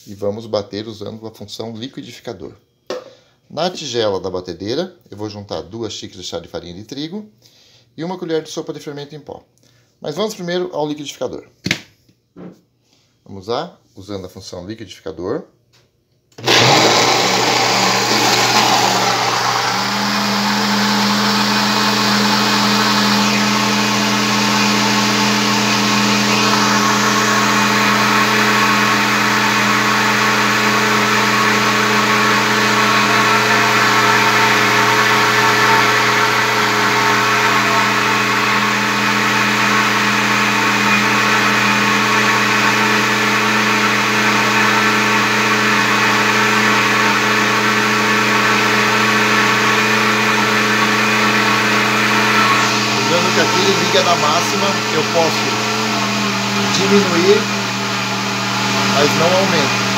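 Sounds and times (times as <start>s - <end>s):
blender motor running: 16.4s - 59.9s.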